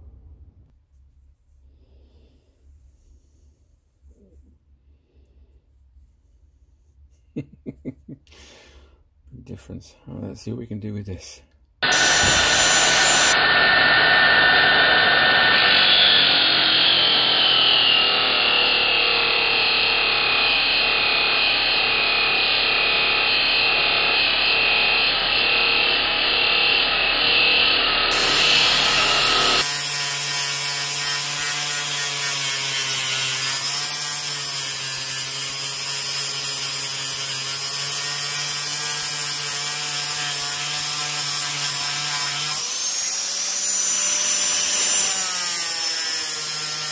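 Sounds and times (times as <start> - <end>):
angle grinder grinding steel: 11.8 - 46.9.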